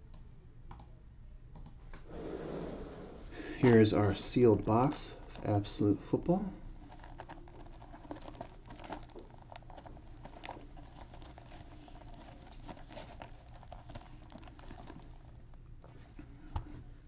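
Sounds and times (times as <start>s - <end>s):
cardboard box rustling: 6.8s - 17.0s.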